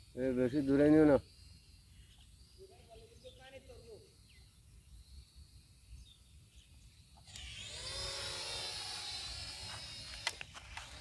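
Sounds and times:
toy quadcopter rotors whining: 7.2 - 11.0.

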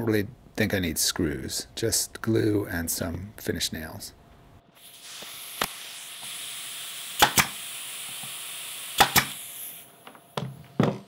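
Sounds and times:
air hiss: 4.7 - 10.0
nail gun firing: 7.2 - 8.3, 8.9 - 9.5.

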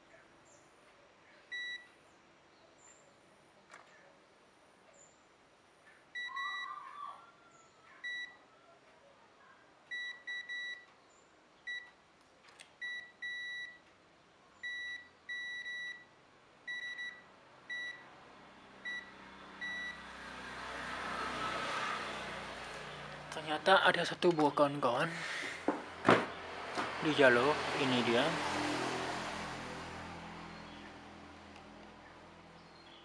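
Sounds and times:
multimeter beeps: 1.5 - 2.0, 6.2 - 6.8, 8.0 - 8.4, 9.9 - 10.9, 11.6 - 12.0, 12.8 - 13.8, 14.6 - 18.1, 18.8 - 20.0.

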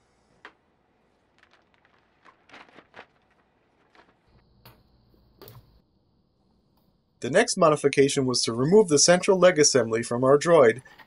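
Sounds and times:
plastic sheet rustling: 0.4 - 4.4.

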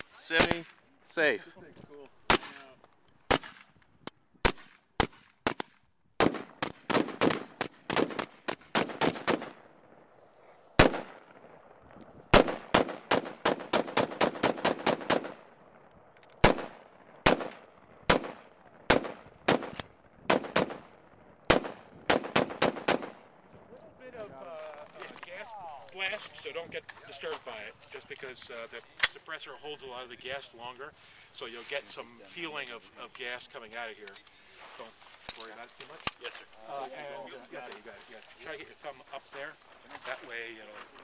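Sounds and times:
suppressed rifle firing: 4.4 - 9.7, 10.8 - 11.4, 12.3 - 15.5, 16.4 - 23.2.

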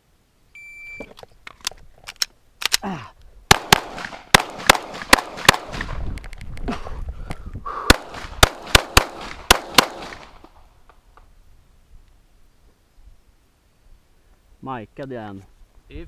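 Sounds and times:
pistol firing rapid shots: 3.5 - 5.9, 7.9 - 10.3.

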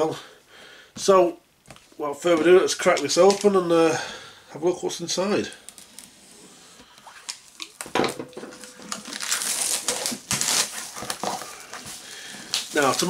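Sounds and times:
shrink-wrap crinkling and tearing: 5.6 - 6.2, 8.5 - 13.0.

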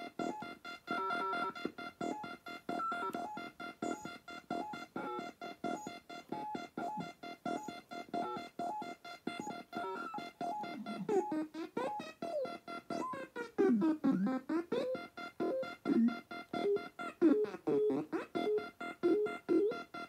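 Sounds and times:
wobbling electronic beeps: 6.6 - 20.0.

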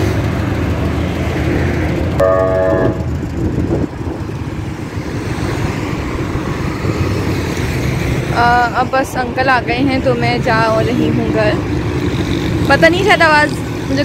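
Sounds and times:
road traffic rumble: 0.0 - 14.0
vehicle horn honking: 2.2 - 3.2.

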